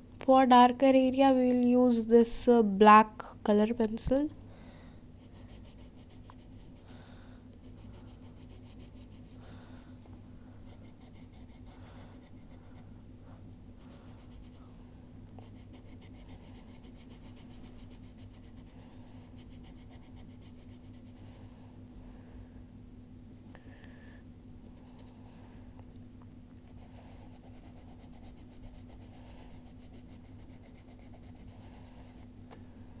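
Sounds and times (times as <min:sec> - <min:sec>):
low steady hum: 0:00.0 - 0:33.0
pencil scratching on paper: 0:05.2 - 0:06.9, 0:07.6 - 0:09.4, 0:10.6 - 0:12.8, 0:13.8 - 0:14.7, 0:15.4 - 0:21.4, 0:26.6 - 0:32.3.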